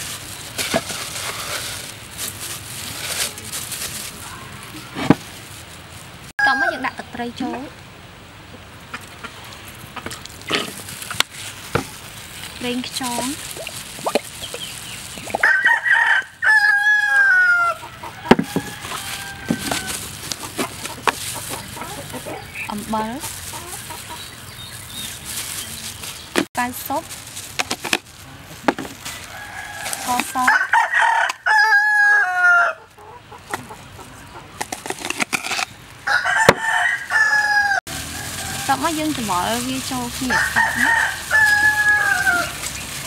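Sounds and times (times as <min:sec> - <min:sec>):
rooster crowing: 0:15.4 - 0:20.1, 0:29.1 - 0:32.9, 0:36.0 - 0:39.0, 0:40.2 - 0:42.6.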